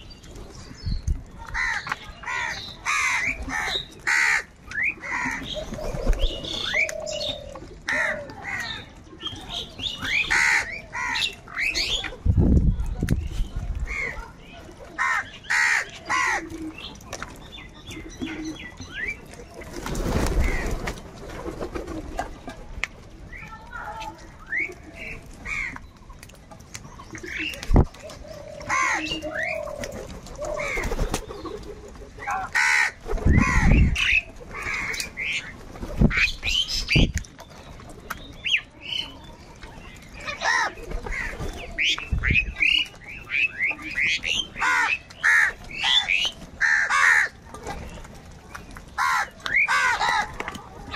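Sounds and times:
crows cawing: 1.6 - 5.5, 7.9 - 8.7, 10.3 - 11.3, 15.0 - 16.5, 28.7 - 29.4, 32.4 - 33.8, 44.6 - 47.4, 49.0 - 50.4
crow cawing: 32.5 - 33.7, 46.6 - 47.4, 49.0 - 50.3.

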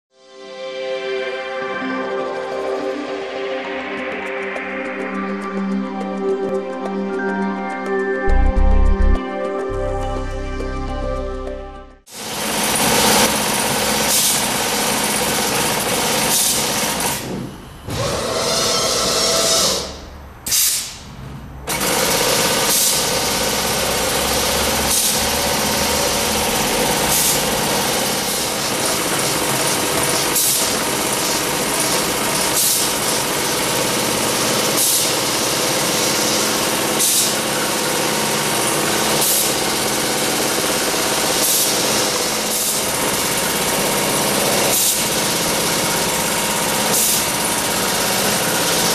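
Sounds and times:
tufting machine mechanical chatter: 21.7 - 48.9.

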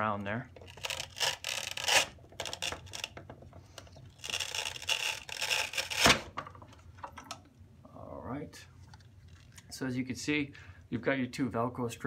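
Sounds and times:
velcro tearing: 0.6 - 3.1, 4.1 - 6.3.

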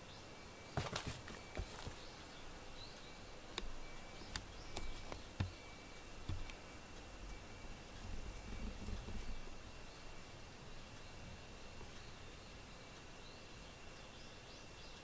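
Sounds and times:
toy thumping on foam mats: 0.8 - 2.1.

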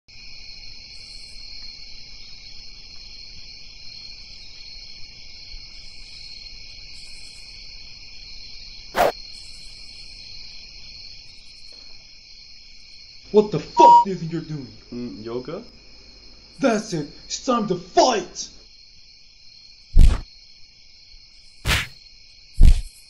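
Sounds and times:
sharp knock: 20.0 - 20.2, 21.7 - 22.0, 22.6 - 22.8.

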